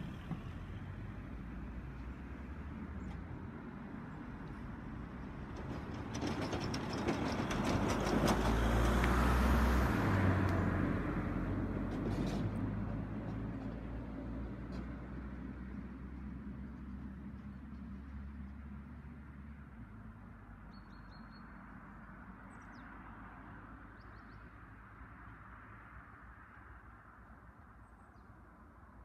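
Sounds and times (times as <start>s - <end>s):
car driving past: 4.1s - 19.6s.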